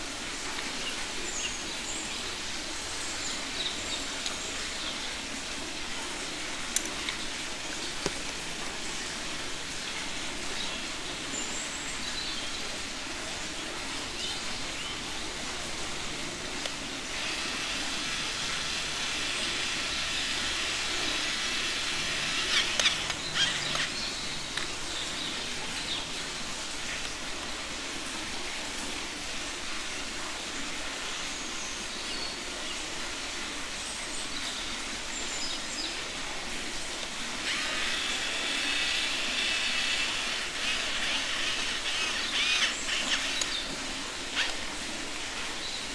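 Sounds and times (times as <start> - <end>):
outdoor background noise: 0.0 - 45.9
toy drill whirring: 17.0 - 24.7, 37.4 - 43.7, 44.3 - 44.6
sharp plastic clicks: 21.1 - 24.8.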